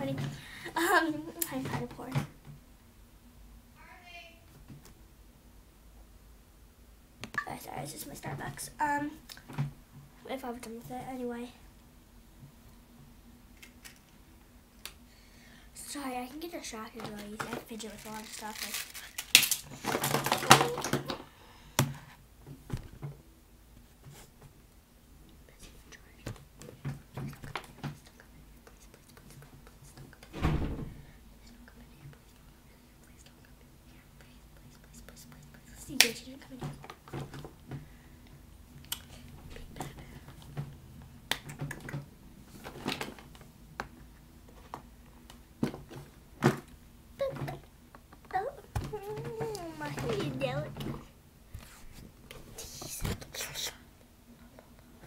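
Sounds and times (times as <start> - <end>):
objects clattering and rustling: 17.0 - 21.3, 41.9 - 43.5, 45.6 - 47.6, 48.7 - 53.2.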